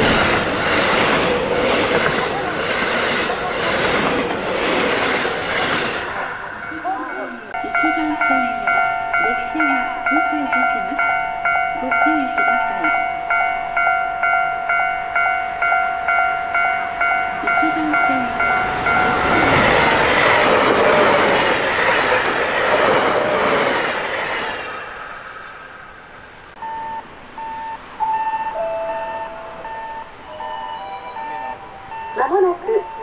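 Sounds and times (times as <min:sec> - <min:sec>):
train wheel and rail noise: 0:00.0 - 0:33.0
intermittent beeping: 0:06.1 - 0:21.4, 0:26.5 - 0:33.0
warning bell ringing: 0:06.2 - 0:20.2, 0:28.0 - 0:33.0.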